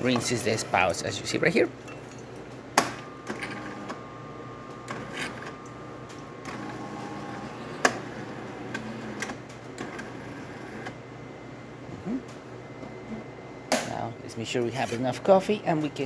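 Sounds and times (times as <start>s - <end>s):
espresso machine humming: 3.2s - 11.0s.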